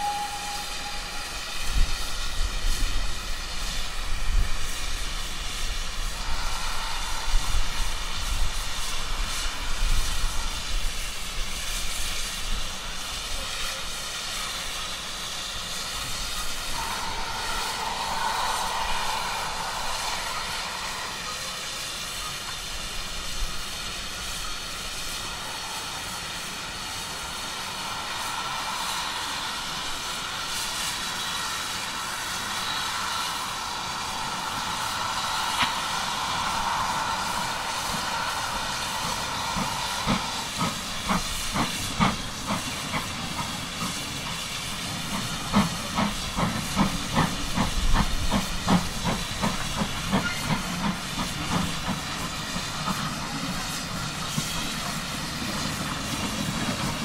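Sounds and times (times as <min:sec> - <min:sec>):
steady high whine: 0:00.0 - 0:11.2, 0:15.7 - 0:43.2
steam hissing: 0:00.0 - 0:57.0.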